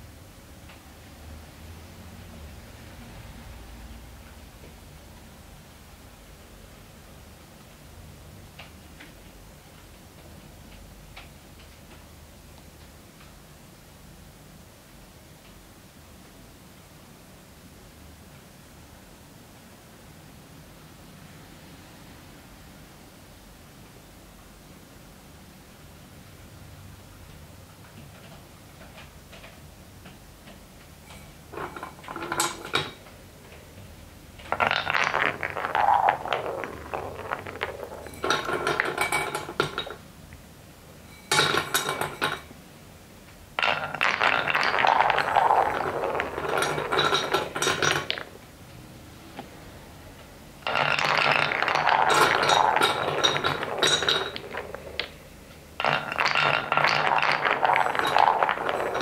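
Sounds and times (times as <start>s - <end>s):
balls clicking and clacking: 27.8s - 40.1s, 41.1s - 42.6s, 43.6s - 48.6s, 50.6s - 59.0s
balls rolling on wooden track: 30.5s - 40.0s, 41.1s - 42.5s, 43.6s - 48.4s, 50.6s - 59.0s.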